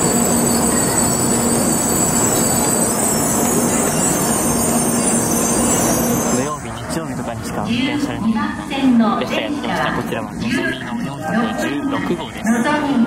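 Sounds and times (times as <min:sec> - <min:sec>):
high-pitched brake squeal: 0:00.0 - 0:06.6
train rolling rumble: 0:00.0 - 0:13.0.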